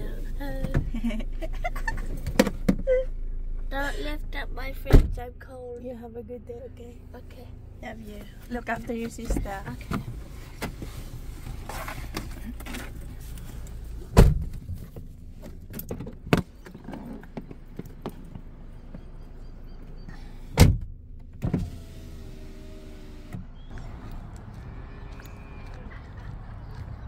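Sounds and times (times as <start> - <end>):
idling car hum: 0.0 - 27.0
car door thumping shut: 14.1 - 14.6, 20.6 - 21.7.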